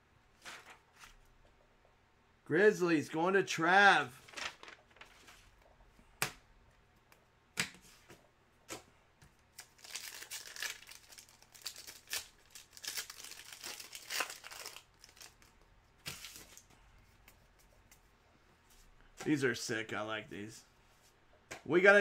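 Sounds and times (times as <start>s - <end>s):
foil wrapper tearing and crinkling: 9.6s - 15.5s.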